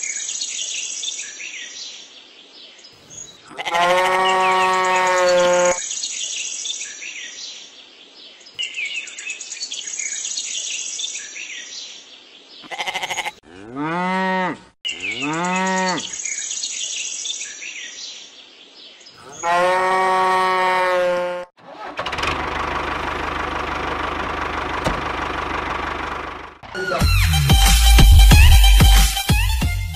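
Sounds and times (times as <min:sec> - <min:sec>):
birds chirping: 0:00.0 - 0:20.6
cattle mooing: 0:03.6 - 0:05.8, 0:12.7 - 0:16.0, 0:19.4 - 0:21.5
music: 0:26.7 - 0:29.9.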